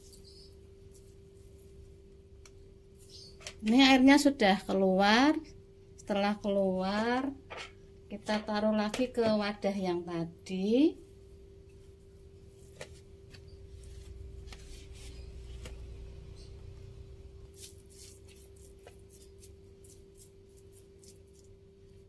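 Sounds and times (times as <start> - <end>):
steady low hum: 0.0 - 22.0
soft handling sounds: 11.7 - 16.0.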